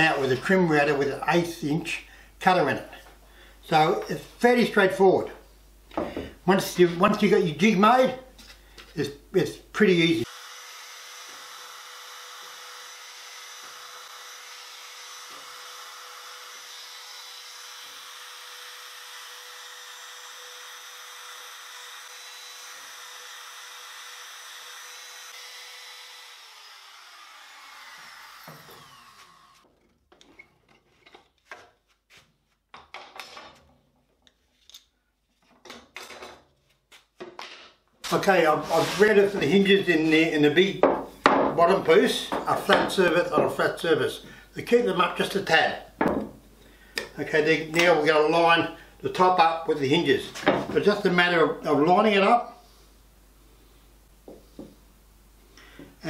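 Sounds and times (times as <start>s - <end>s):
router whining: 10.3s - 30.4s.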